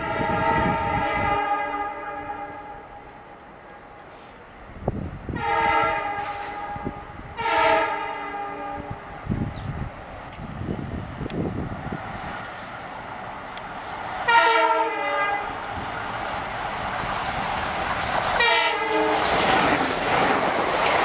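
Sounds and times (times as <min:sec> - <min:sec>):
locomotive air horn blasts: 0:00.0 - 0:02.8, 0:05.3 - 0:09.1, 0:14.3 - 0:15.6, 0:18.4 - 0:19.3
locomotive engine rumble: 0:09.8 - 0:21.0.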